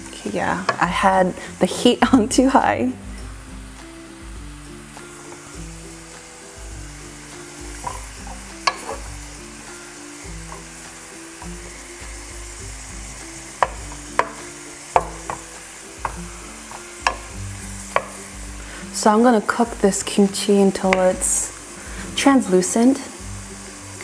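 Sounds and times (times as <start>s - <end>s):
food sizzling in a frying pan: 0.0s - 24.0s
spatula knocking on pan: 7.7s - 9.1s, 13.6s - 18.3s, 20.9s - 21.2s.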